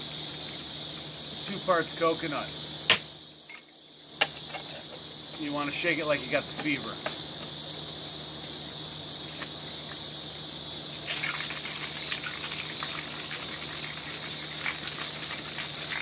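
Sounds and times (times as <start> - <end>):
crickets chirping: 0.0 - 16.0
ice rattling in cocktail shaker: 11.0 - 16.0.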